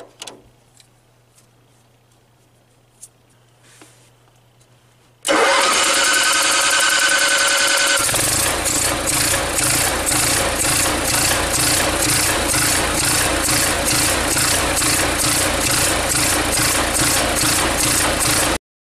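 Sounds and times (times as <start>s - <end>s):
generator engine pulsing: 5.3s - 18.6s
starter cranking generator: 5.3s - 18.6s.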